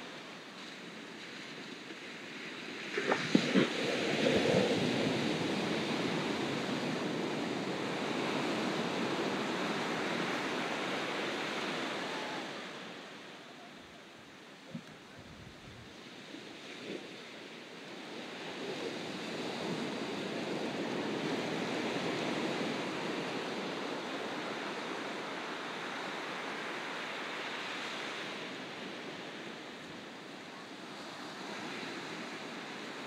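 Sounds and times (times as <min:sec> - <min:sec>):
waves breaking on beach: 0:00.0 - 0:33.0.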